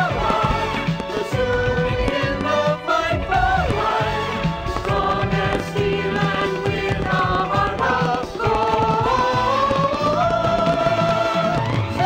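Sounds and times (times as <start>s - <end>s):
voices singing held notes: 0.0s - 12.0s.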